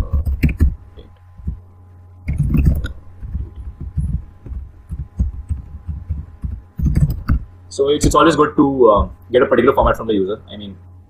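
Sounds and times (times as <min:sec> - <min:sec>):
laptop keyboard typing: 0:00.0 - 0:00.8, 0:02.3 - 0:07.5
low electrical hum: 0:00.0 - 0:11.0.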